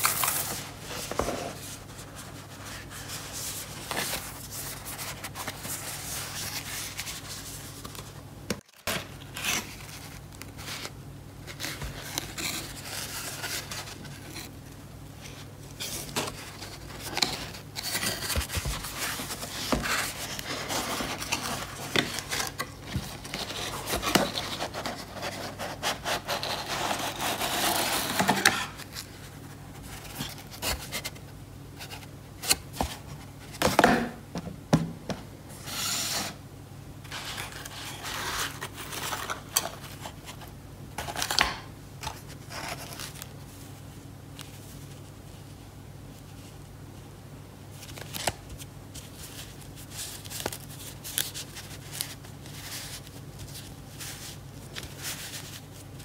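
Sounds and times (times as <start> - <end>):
cardboard scraping and rubbing: 0.0 - 8.0, 15.8 - 29.1.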